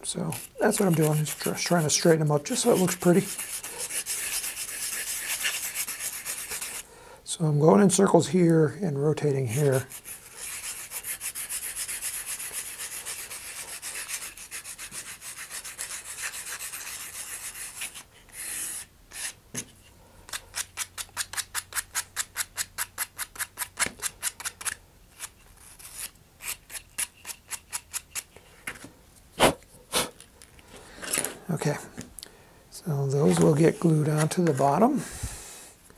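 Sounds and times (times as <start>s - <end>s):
sandpaper scraping: 0.3s - 6.8s, 9.4s - 19.4s, 20.3s - 28.3s, 33.2s - 34.9s.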